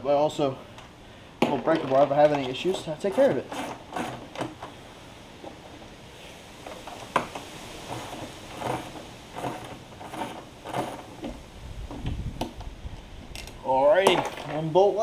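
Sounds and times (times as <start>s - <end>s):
tool knocking and scraping bolts: 1.4s - 4.8s, 6.6s - 12.6s, 13.4s - 14.7s.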